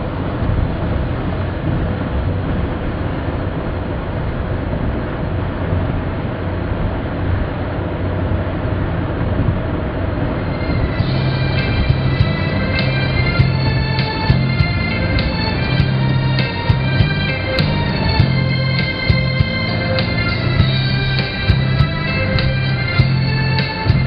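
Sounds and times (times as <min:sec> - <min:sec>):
low hum: 0:00.0 - 0:24.0
road and tyre noise: 0:00.0 - 0:24.0
music: 0:10.4 - 0:24.0.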